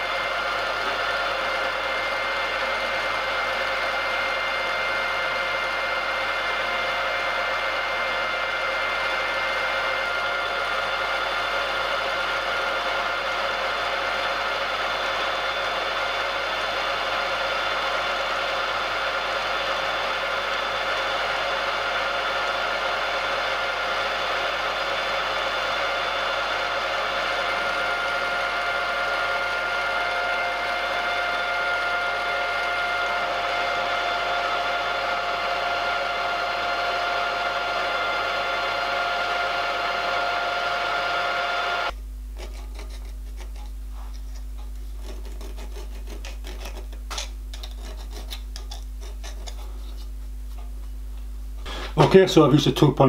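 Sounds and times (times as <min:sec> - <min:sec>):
milling machine whine: 0:00.0 - 0:42.0
file scraping metal: 0:42.3 - 0:50.2.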